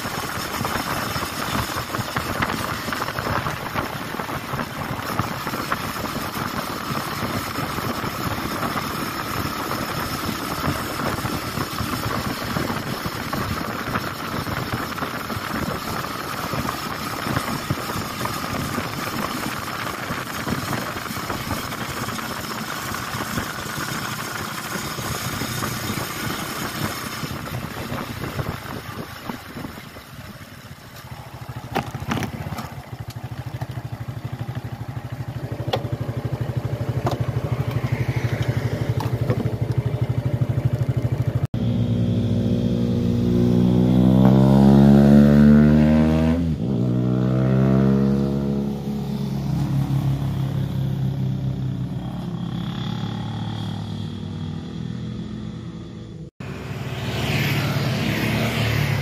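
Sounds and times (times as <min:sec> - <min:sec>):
wind noise: 0:00.0 - 0:23.7, 0:24.7 - 0:30.7
motorcycle engine cruising: 0:00.0 - 0:59.0
tyres on wet road: 0:00.0 - 0:59.0.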